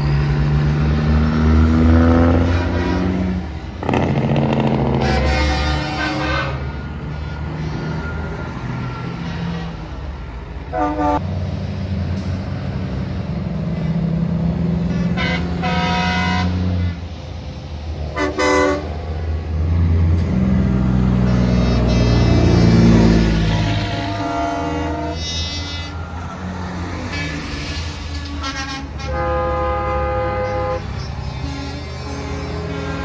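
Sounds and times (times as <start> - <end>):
diesel engines running: 0.0 - 33.0
truck air horn blasts: 1.8 - 7.9, 10.7 - 11.2, 14.8 - 17.0, 18.1 - 19.0, 21.1 - 26.2, 26.9 - 33.0.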